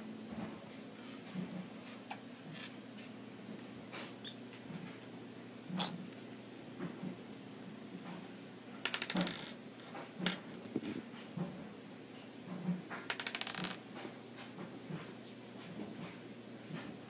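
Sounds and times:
plastic cup clattering on wood: 8.9 - 9.6.

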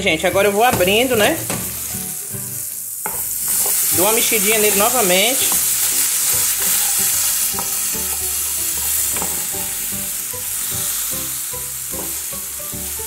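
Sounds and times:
okra sizzling in oil: 0.2 - 13.0
utensil scraping pan: 3.1 - 9.7.

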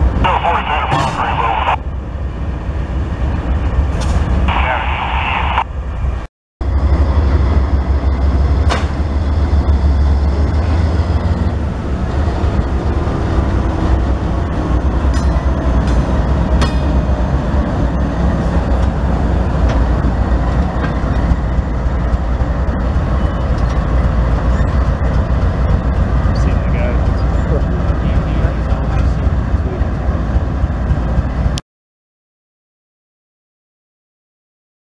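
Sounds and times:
diesel locomotives rumbling: 0.0 - 31.6.

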